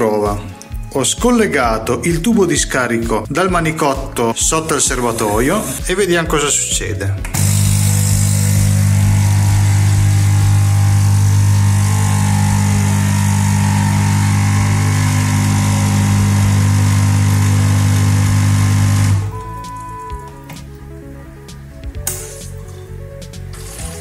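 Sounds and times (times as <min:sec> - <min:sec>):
espresso machine pump buzzing: 0:07.3 - 0:20.3, 0:23.5 - 0:24.0.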